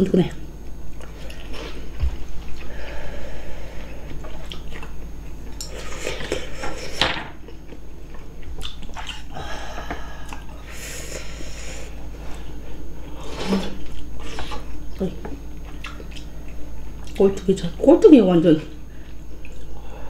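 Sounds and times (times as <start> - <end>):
wet eating sounds: 0.9 - 3.0, 3.6 - 10.6, 12.2 - 17.5, 18.6 - 19.8.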